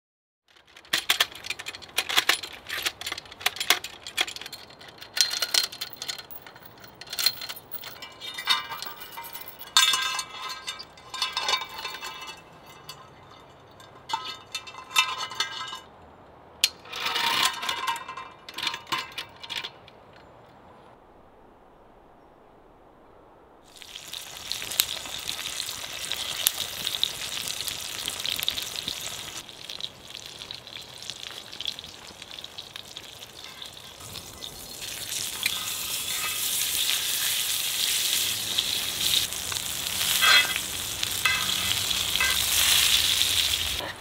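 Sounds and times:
metal chain clinking and jangling: 0.6 - 15.9, 38.2 - 43.9.

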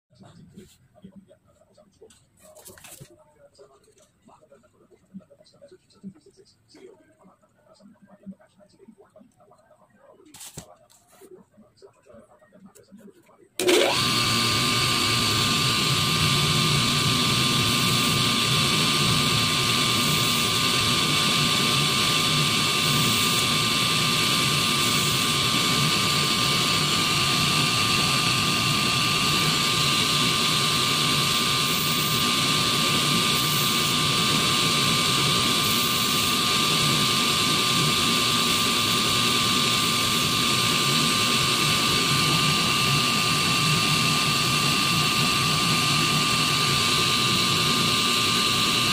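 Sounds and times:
grinding stone whining: 13.6 - 48.9.

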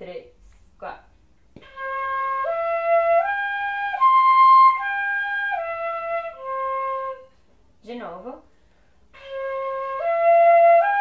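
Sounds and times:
fife playing arpeggio: 1.6 - 7.2, 9.2 - 11.0.

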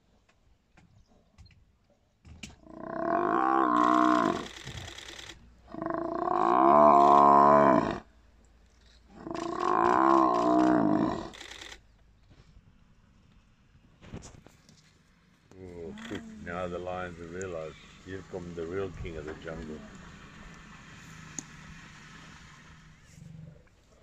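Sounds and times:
buffalo bellowing: 2.6 - 4.5, 5.7 - 8.1, 9.1 - 11.3, 15.7 - 20.6.

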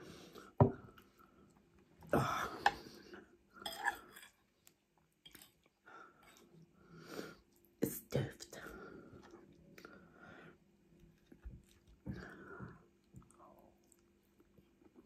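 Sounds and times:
chewing: 11.0 - 15.0.

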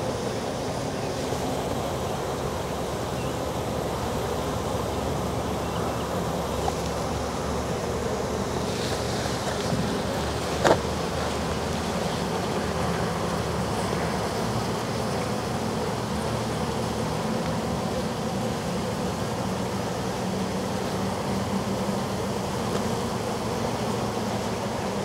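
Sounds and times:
bees buzzing: 0.0 - 25.0.

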